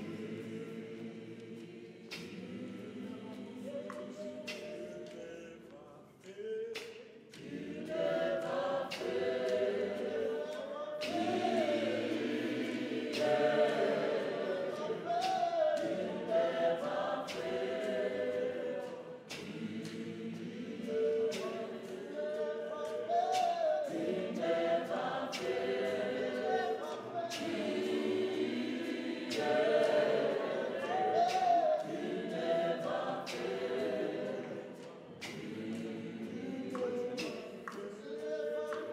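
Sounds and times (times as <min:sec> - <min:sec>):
choir singing a cappella: 0:00.0 - 0:38.9.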